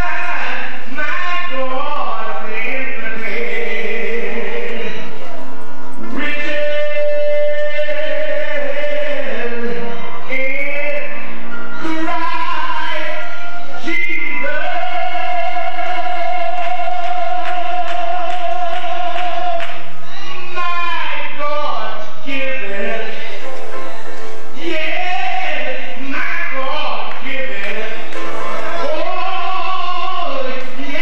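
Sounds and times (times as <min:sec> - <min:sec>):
man singing gospel into microphone: 0:00.0 - 0:05.2, 0:06.0 - 0:23.8, 0:24.5 - 0:31.0.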